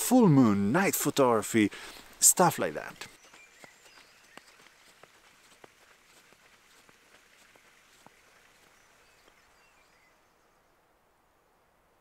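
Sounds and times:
faint high bird chirps: 3.0 - 5.1, 8.6 - 10.8.

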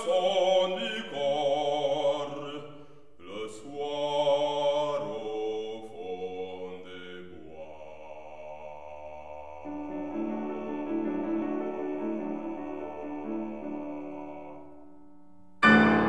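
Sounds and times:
grand piano accompaniment: 9.6 - 16.0.

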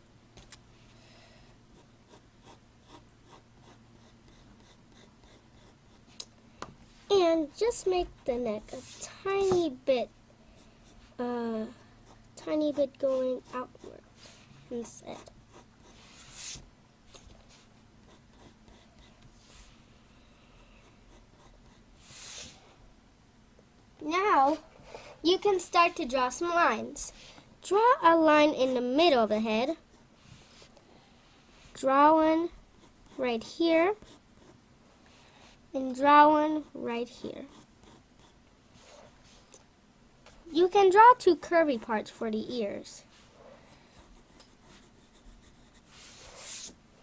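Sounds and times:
pencil scratching on paper: 1.7 - 6.1, 8.6 - 9.7, 12.8 - 16.6, 17.5 - 19.8, 20.6 - 22.6, 32.8 - 34.6, 37.4 - 39.1, 43.9 - 46.8.

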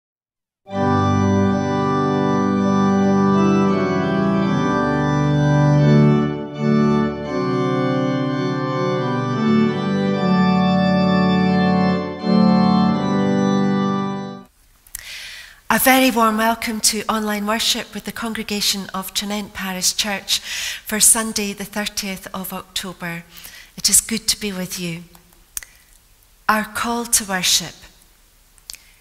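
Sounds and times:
organ playing sustained chords: 0.7 - 14.5.

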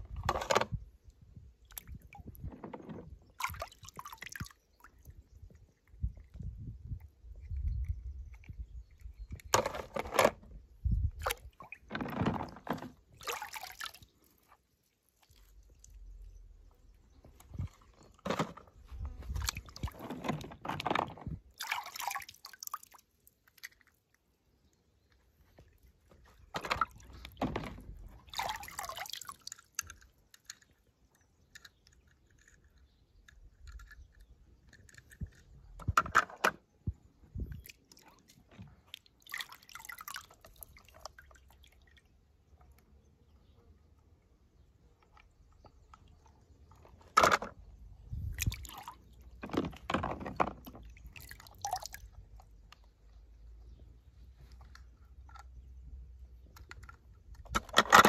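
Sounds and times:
water splashing and sloshing: 0.0 - 30.9, 34.9 - 43.0, 45.0 - 53.8, 54.4 - 58.0
toy cars dropped into water: 0.1 - 0.8, 8.3 - 14.1, 26.5 - 36.7, 46.6 - 52.9, 56.4 - 58.0.

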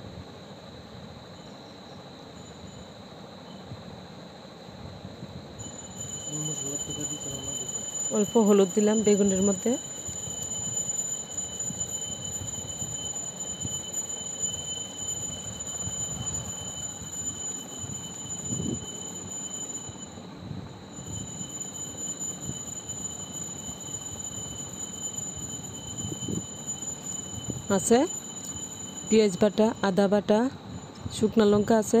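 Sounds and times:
high-pitched whine: 5.3 - 32.0.

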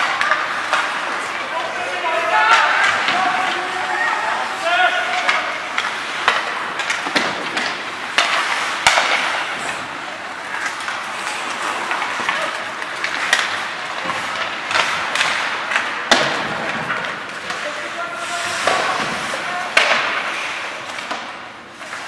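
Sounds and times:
hockey sticks and puck clacking: 0.0 - 22.0
skates scraping ice: 0.0 - 22.0.

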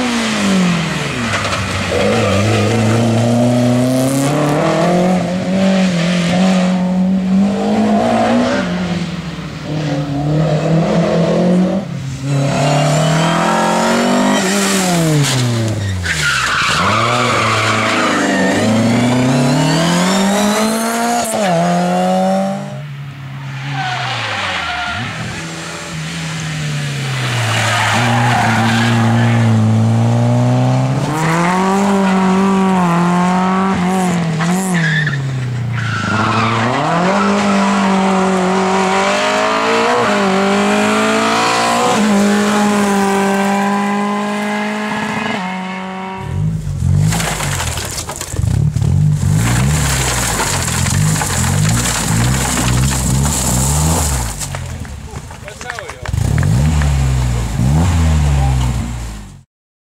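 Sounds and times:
rally car engines revving: 0.0 - 59.4
tyre squeal: 15.7 - 20.6, 34.7 - 38.0.

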